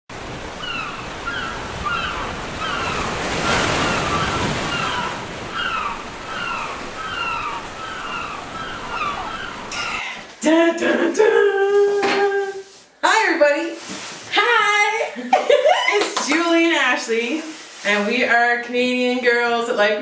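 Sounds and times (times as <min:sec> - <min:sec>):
ocean surf rushing: 0:00.1 - 0:10.0
short falling calls: 0:00.6 - 0:10.2
voices and laughter: 0:15.0 - 0:16.3.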